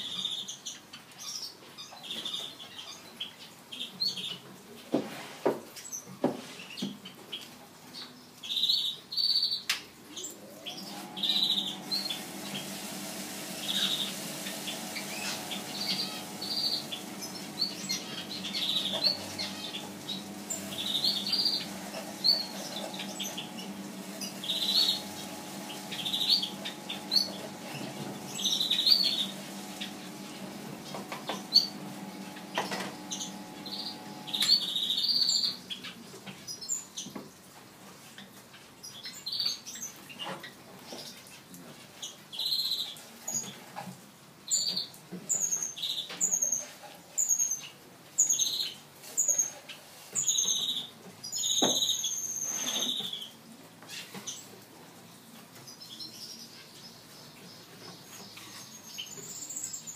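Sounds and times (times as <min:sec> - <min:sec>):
small birds chirping: 0:05.9 - 0:12.8, 0:13.6 - 0:37.2
machine motor humming: 0:10.7 - 0:35.6.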